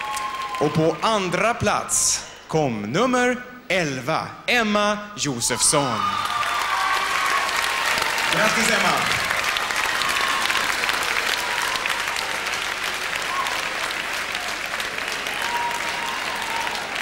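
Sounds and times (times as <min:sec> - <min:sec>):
audience applause: 0:00.0 - 0:01.5, 0:05.9 - 0:17.0.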